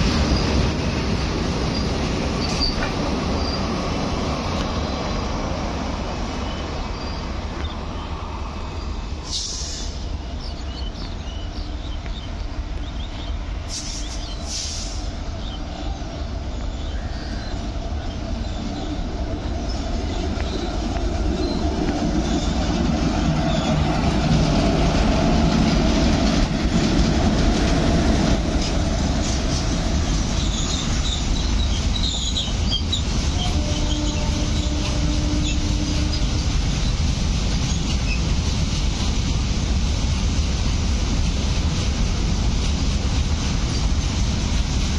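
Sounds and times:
freight train passing: 0:00.0 - 0:44.9
wheels clattering and squealing: 0:01.6 - 0:03.7, 0:30.2 - 0:37.0.

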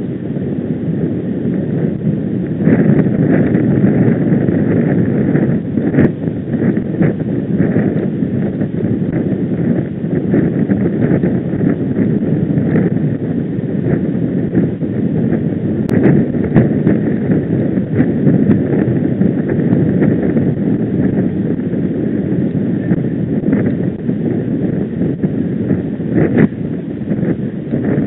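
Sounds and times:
wind rushing over microphone: 0:00.0 - 0:28.0.

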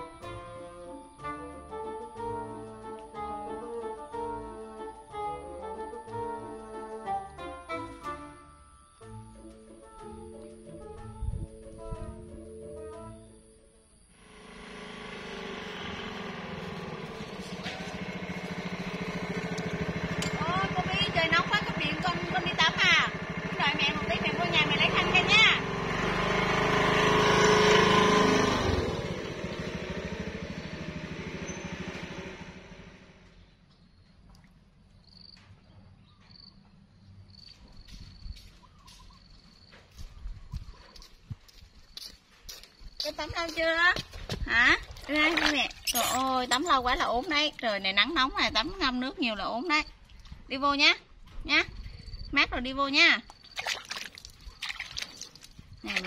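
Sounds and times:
background music: 0:00.0 - 0:14.0
motor scooter engine approaching: 0:14.1 - 0:33.7, 0:38.9 - 0:52.6
thin high-pitched chirp: 0:45.8 - 0:46.7.

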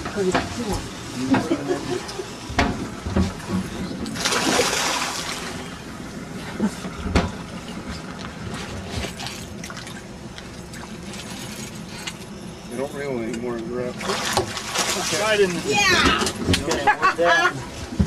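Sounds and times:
outboard motor humming: 0:00.0 - 0:18.0
knocks against boat: 0:02.5 - 0:03.7, 0:15.8 - 0:16.9
fish splashing at surface: 0:04.1 - 0:05.7, 0:14.0 - 0:15.6.

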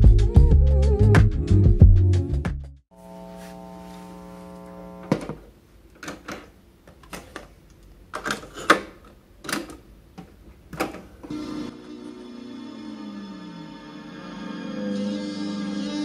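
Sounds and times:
steady hum: 0:02.9 - 0:05.8.

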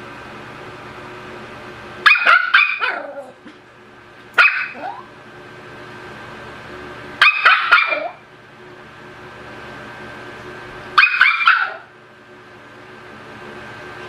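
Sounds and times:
puppy yapping: 0:02.0 - 0:03.4, 0:04.4 - 0:05.1, 0:07.2 - 0:08.2, 0:11.0 - 0:11.9.

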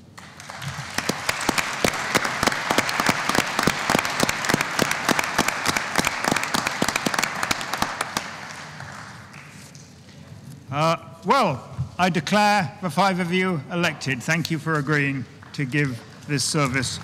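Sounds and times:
crowd applauding: 0:00.0 - 0:10.0, 0:14.6 - 0:17.0.

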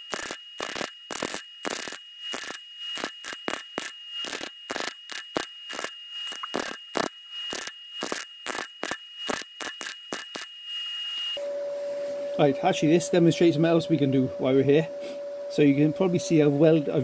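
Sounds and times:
welder crackling and popping: 0:00.0 - 0:10.5
welder high whine: 0:00.0 - 0:17.0.

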